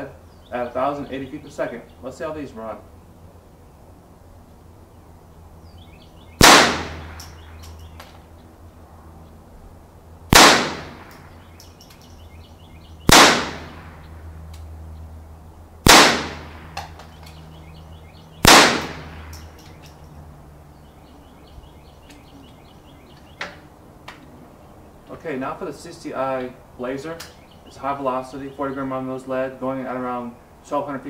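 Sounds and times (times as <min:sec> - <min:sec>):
rifle shots with echo: 0:06.4 - 0:07.6, 0:10.3 - 0:11.2, 0:13.1 - 0:14.0, 0:15.8 - 0:16.8, 0:18.4 - 0:19.3.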